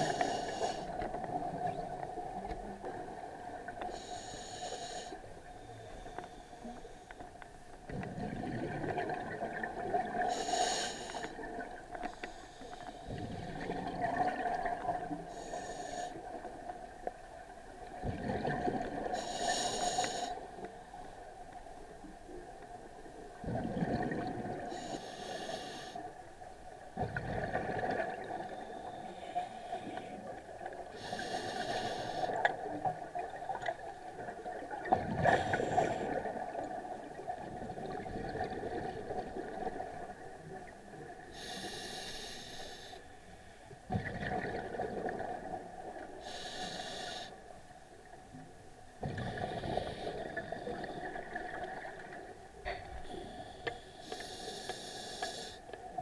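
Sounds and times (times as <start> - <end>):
hissing regulator inhalation: 0.0 - 1.0, 19.2 - 20.4, 24.7 - 26.0, 53.2 - 55.6.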